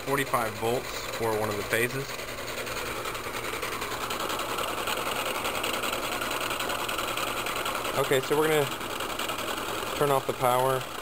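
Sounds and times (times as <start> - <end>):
electric motor humming and whirring: 0.0 - 11.0.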